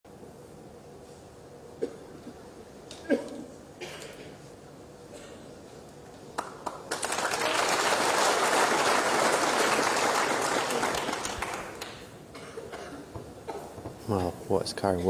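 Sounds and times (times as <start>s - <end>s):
crowd applauding: 6.4s - 12.1s.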